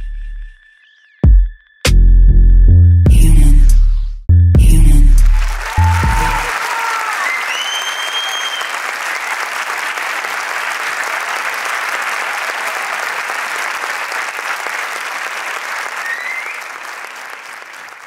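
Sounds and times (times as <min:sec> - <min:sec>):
audience applause: 0:05.4 - 0:18.0.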